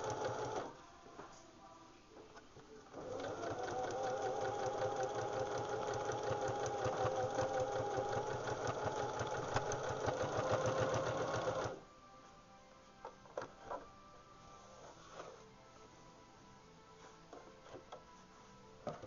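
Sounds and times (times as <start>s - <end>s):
sewing machine stitching: 0.0s - 0.8s, 2.9s - 11.8s.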